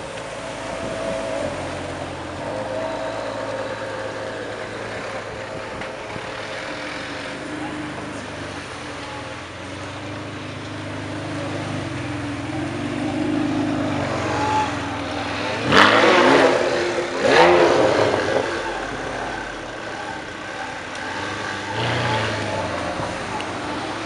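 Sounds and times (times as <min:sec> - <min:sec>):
car engine revving hard: 0:11.0 - 0:24.0.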